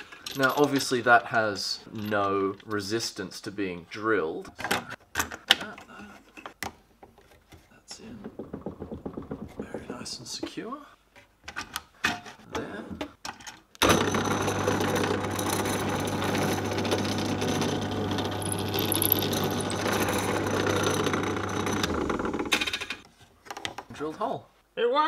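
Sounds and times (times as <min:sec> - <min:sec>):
drill bit drilling into wood: 0:13.8 - 0:23.0
drill press motor humming: 0:13.8 - 0:23.0.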